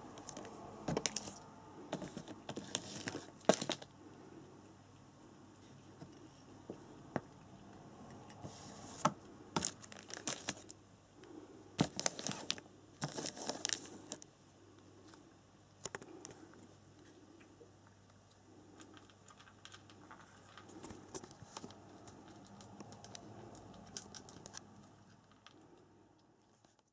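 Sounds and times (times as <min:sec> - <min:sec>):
crinkling and rustling: 0:00.0 - 0:03.9, 0:08.1 - 0:10.8, 0:11.8 - 0:14.3, 0:18.1 - 0:26.9.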